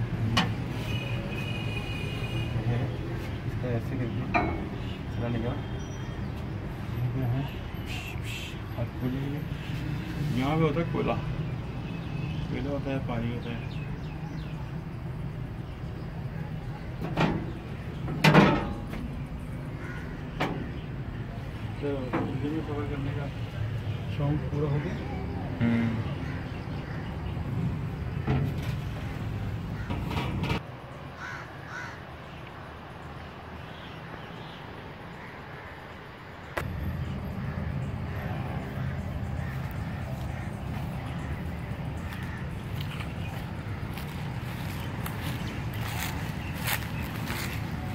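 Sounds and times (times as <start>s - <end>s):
crows cawing: 19.7s - 20.8s, 29.8s - 30.0s, 31.2s - 32.1s, 37.3s - 47.6s.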